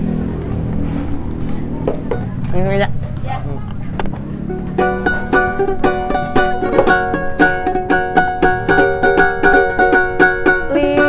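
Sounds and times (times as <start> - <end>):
acoustic string instrument strummed: 4.2 - 11.0.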